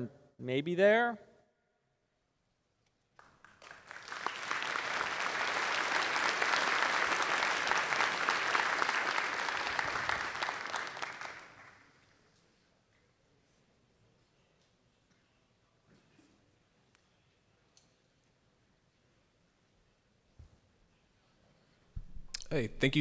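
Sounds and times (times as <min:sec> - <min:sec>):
audience applauding: 0:03.2 - 0:12.1.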